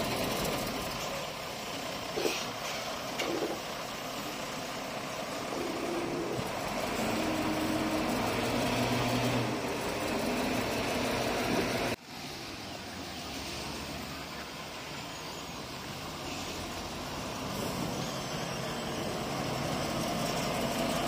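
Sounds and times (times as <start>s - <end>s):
diesel engine running: 0.0s - 21.0s.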